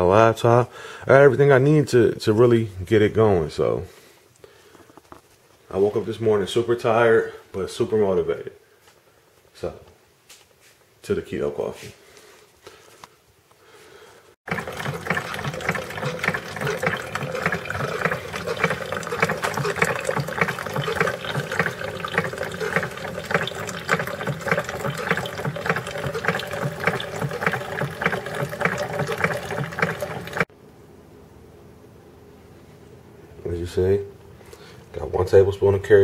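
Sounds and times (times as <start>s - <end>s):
coffee maker spluttering: 14.5s - 30.5s.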